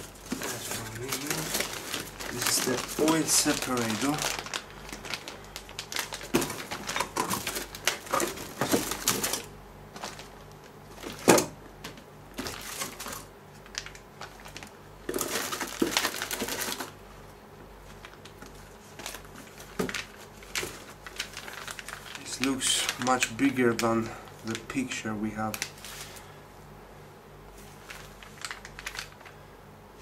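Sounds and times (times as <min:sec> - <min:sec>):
cardboard box rustling: 0:00.0 - 0:09.4
plastic bags crinkling: 0:00.0 - 0:17.0, 0:17.8 - 0:26.3, 0:27.6 - 0:29.4.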